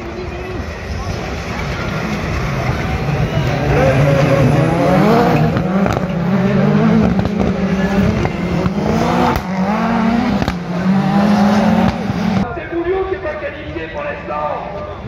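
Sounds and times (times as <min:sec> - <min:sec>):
racing car engines revving: 0:00.0 - 0:12.5
exhaust pops and crackles: 0:05.4 - 0:06.2, 0:07.0 - 0:09.6, 0:10.3 - 0:10.6.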